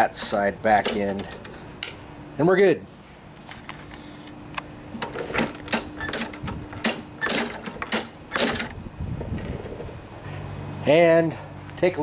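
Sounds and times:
metallic clicks and rattles: 0:00.8 - 0:01.6, 0:05.0 - 0:08.8.

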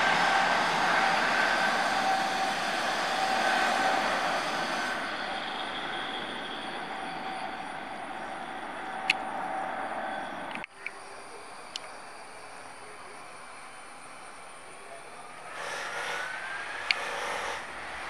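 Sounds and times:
jet engine rush: 0:00.0 - 0:10.7.

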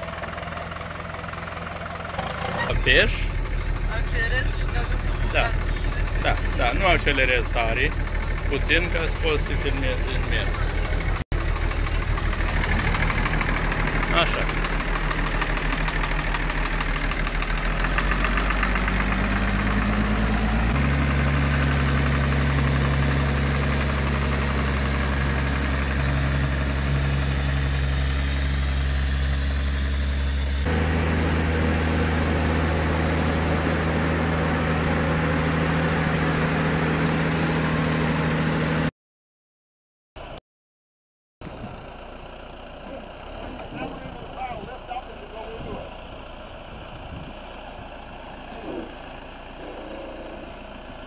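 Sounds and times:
tractor diesel engine running: 0:00.0 - 0:38.9, 0:41.4 - 0:51.0.

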